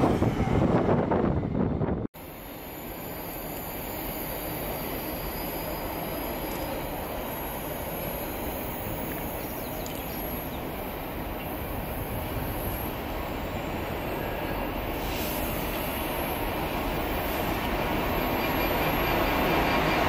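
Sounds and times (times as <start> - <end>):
diesel locomotive rumbling: 0.0 - 20.0.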